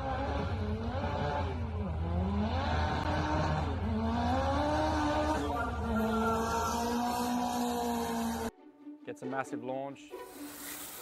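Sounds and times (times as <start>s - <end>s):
drag car accelerating hard: 0.0s - 8.5s.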